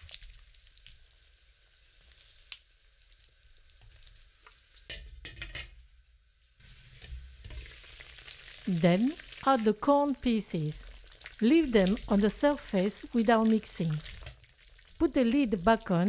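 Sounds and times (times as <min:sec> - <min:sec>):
ribs sizzling and bubbling: 0:00.0 - 0:06.0, 0:06.6 - 0:16.0
spatula scraping wok: 0:06.6 - 0:08.5.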